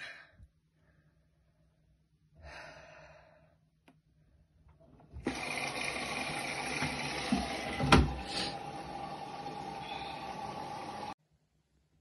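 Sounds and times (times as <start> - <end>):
washing machine thump: 6.9 - 8.3.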